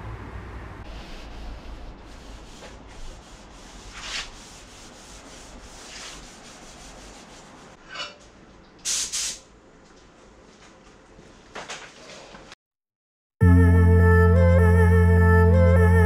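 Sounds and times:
cloth rubbing on car panel: 0.9 - 7.8
short hissing noises: 8.8 - 9.5.

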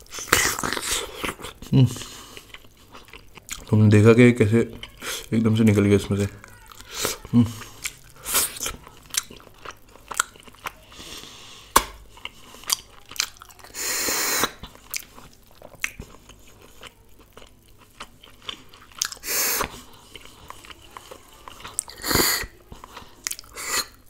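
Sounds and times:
wet chewing: 0.0 - 3.8, 4.6 - 5.4, 6.0 - 24.0
lip smacks: 6.7 - 10.8, 11.7 - 16.3
loud sucking slurp: 13.7 - 14.6, 21.9 - 22.5.

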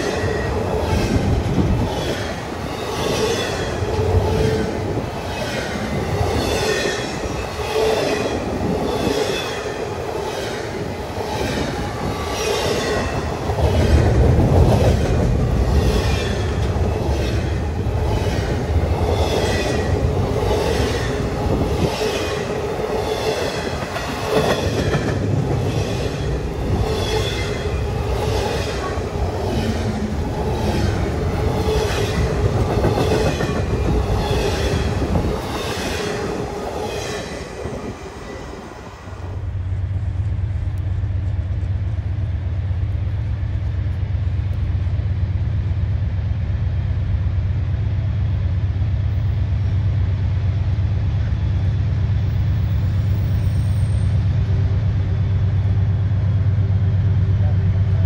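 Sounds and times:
train wheels squealing: 52.6 - 54.3.

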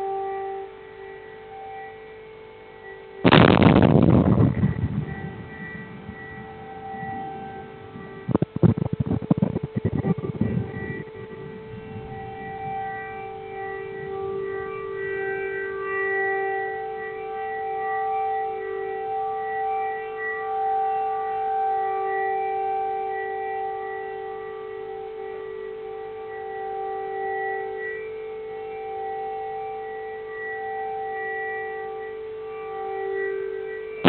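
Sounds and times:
air raid siren steady tone: 0.0 - 34.0
low rumble: 3.3 - 15.0.

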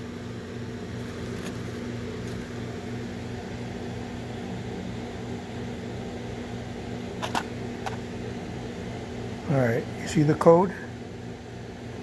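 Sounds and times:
pulsing mechanical hum: 0.0 - 12.0.

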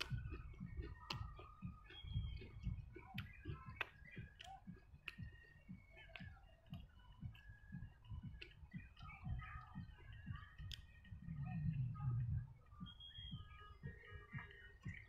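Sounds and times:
wet mouth clicks and lip smacks: 0.0 - 7.5
close-up chewing: 0.0 - 15.0.

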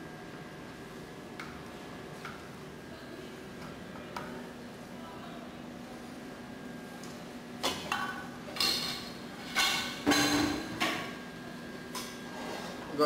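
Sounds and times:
steady hum: 0.0 - 13.0
metal kitchenware clattering: 8.6 - 10.9.

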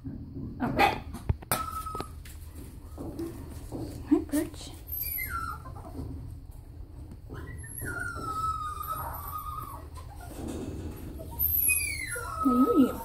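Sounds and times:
small dog whining: 1.5 - 3.0, 4.8 - 6.1, 7.3 - 13.0.

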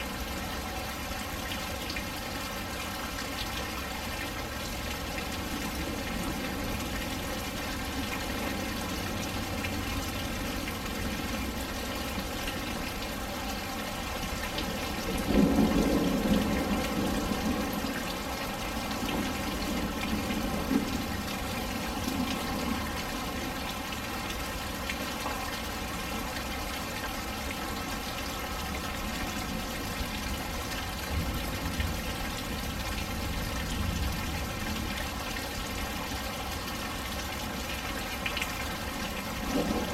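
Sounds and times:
rain splashing on a patio: 0.0 - 39.9
thunder rumble: 15.0 - 17.9, 39.4 - 39.9.

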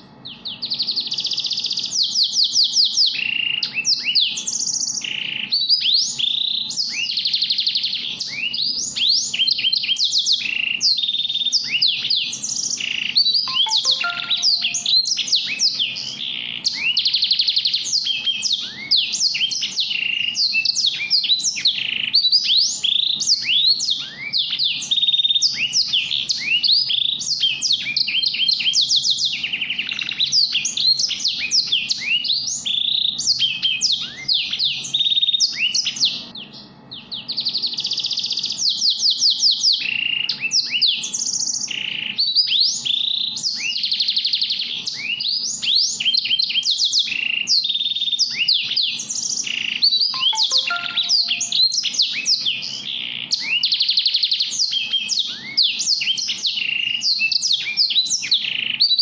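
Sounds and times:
finches chirping and trilling: 43.2 - 58.9.

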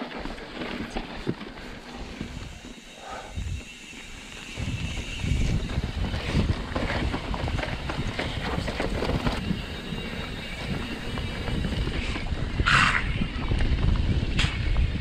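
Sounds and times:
bike rattling over roots: 0.0 - 15.0
bike tyres rumbling on dirt: 0.0 - 15.0
wind buffeting microphone: 3.3 - 15.0.

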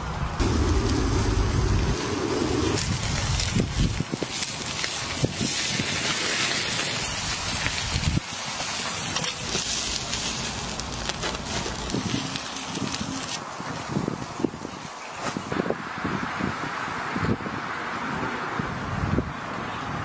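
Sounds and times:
shrimp sizzling on a grill: 0.4 - 15.5.

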